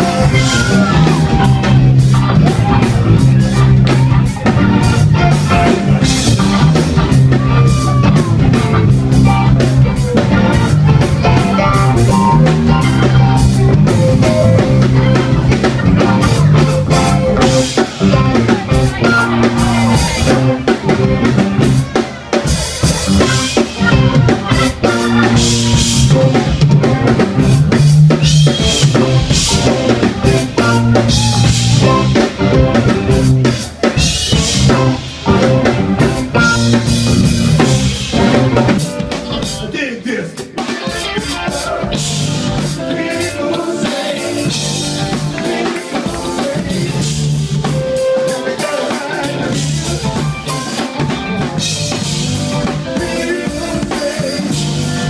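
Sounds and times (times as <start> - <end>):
funk band playing: 0.0 - 55.0.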